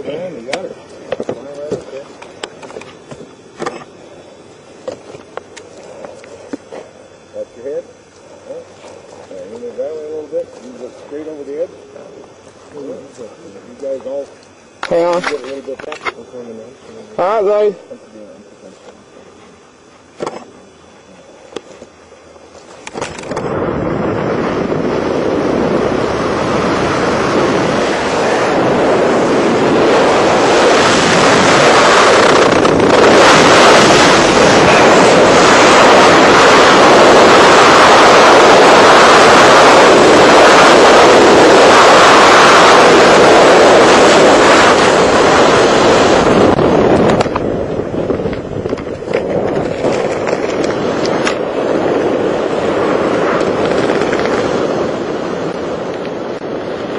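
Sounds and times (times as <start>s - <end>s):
wind rushing over microphone: 22.8s - 56.9s.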